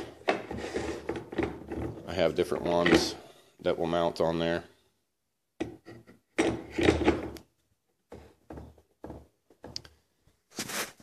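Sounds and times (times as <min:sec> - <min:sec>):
tool rest knocks and scrapes: 0:05.6 - 0:07.4.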